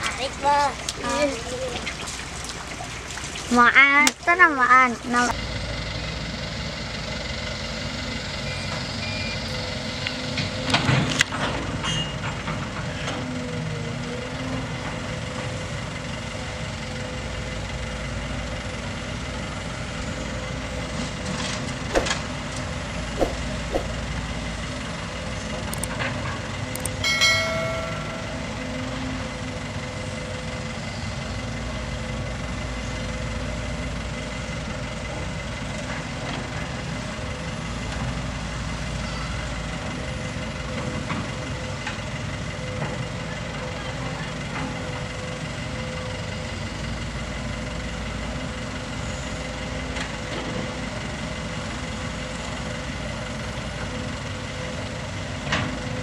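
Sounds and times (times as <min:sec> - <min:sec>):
excavator diesel engine running: 0:00.1 - 0:56.0
short high-pitched tone: 0:27.1 - 0:29.0.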